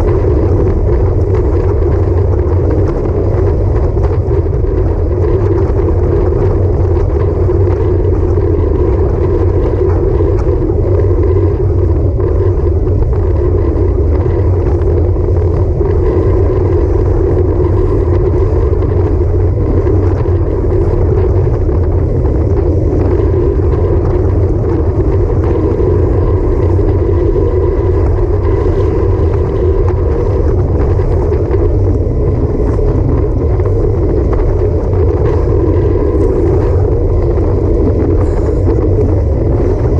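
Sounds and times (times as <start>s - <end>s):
faint steady whine: 0.0s - 39.9s
road rumble: 0.0s - 39.9s
wind rush: 0.0s - 39.9s.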